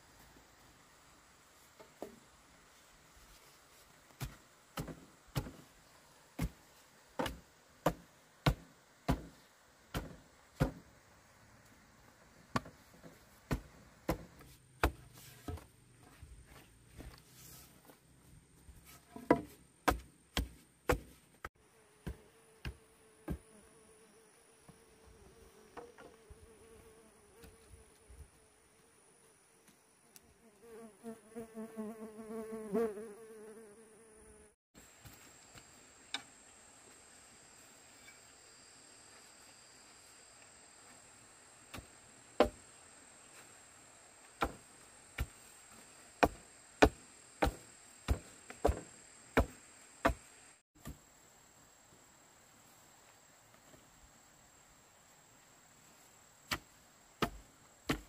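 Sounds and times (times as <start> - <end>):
insect buzzing: 21.6 - 36.4
sharp chopping knocks: 46.2 - 50.2, 57.2 - 58.0.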